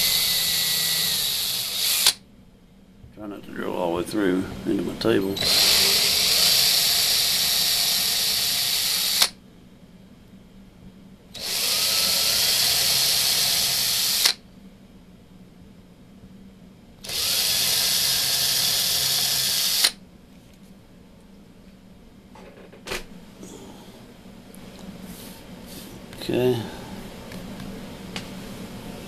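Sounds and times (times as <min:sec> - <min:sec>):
electric drill boring into fiberboard: 0:00.0 - 0:02.2, 0:05.4 - 0:09.4, 0:11.4 - 0:14.4, 0:17.0 - 0:20.0.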